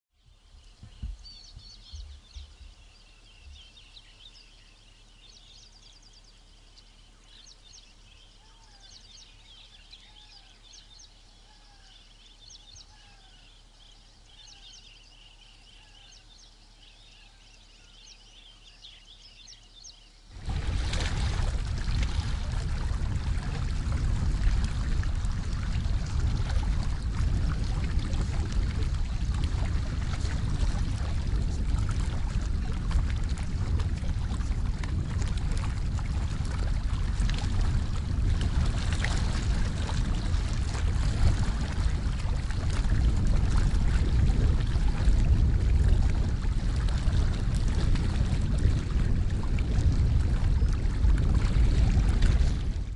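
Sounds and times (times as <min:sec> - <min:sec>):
choppy open water: 0:00.1 - 0:52.9
wind rushing: 0:20.3 - 0:52.9.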